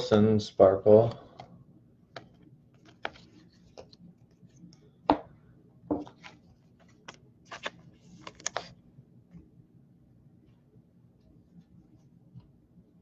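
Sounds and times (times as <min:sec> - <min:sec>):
cards clicking and rustling: 0:02.1 - 0:04.0, 0:06.0 - 0:08.8.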